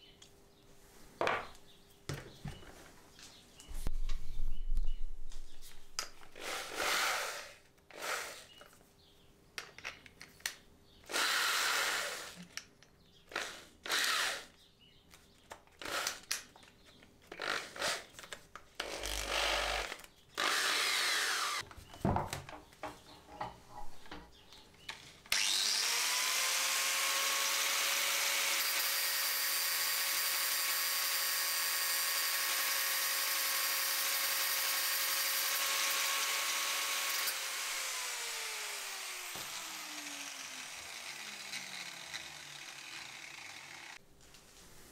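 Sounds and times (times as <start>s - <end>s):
angle grinder grinding metal: 18.8s - 21.6s, 25.3s - 44.0s.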